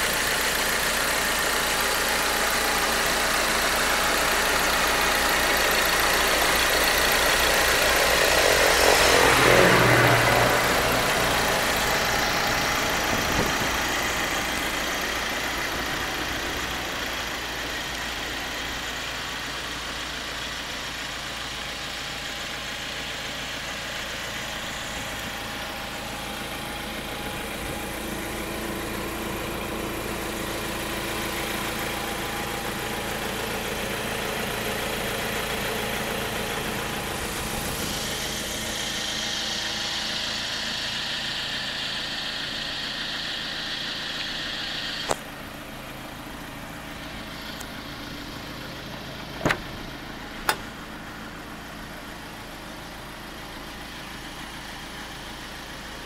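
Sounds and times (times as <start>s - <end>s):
diesel engine idling: 0.0s - 56.0s
car door opening clicks: 49.4s - 50.7s.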